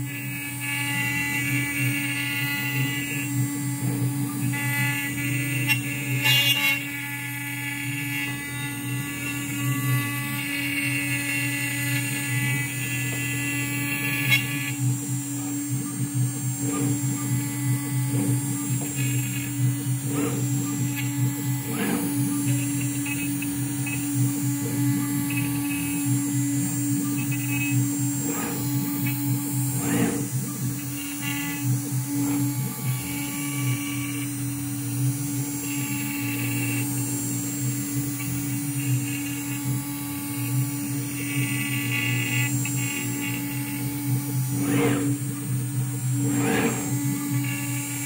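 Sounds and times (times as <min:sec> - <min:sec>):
high-pitched whine: 0:00.0 - 0:48.0
router spindle hum and whine: 0:00.0 - 0:48.0.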